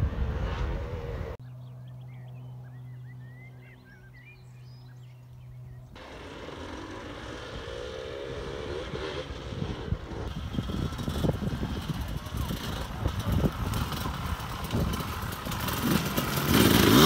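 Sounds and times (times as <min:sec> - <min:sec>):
low hum: 0:00.0 - 0:12.5
dirt bike engines revving: 0:00.0 - 0:17.0
birds chirping: 0:01.1 - 0:07.1.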